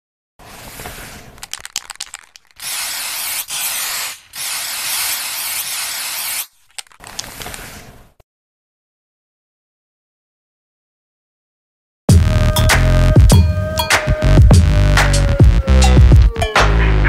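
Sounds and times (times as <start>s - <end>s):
spray paint hissing: 0.5s - 7.6s
spray can ball rattling: 1.0s - 7.6s.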